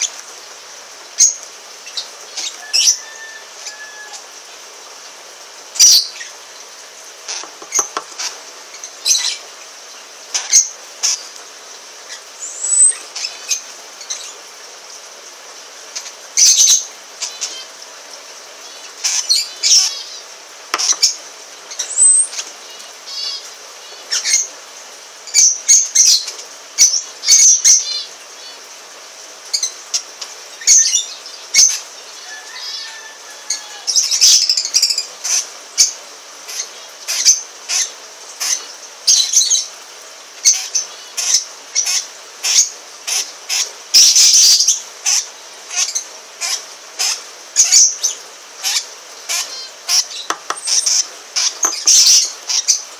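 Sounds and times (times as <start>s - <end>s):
birds shrieking: 1.2s - 4.5s, 30.7s - 39.6s, 40.4s - 52.9s.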